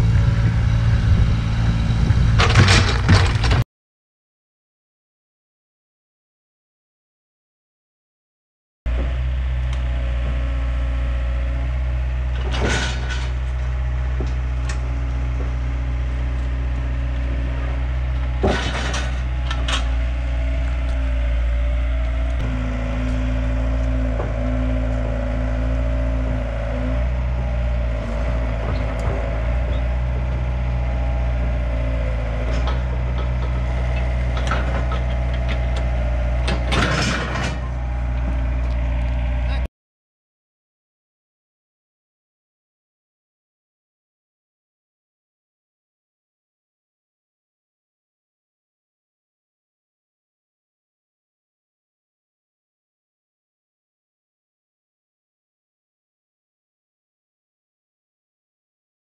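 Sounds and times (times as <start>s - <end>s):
diesel engine running: 0.0s - 3.6s, 8.9s - 39.7s
knocks and clatters: 2.3s - 3.6s, 18.0s - 20.0s, 31.0s - 39.2s.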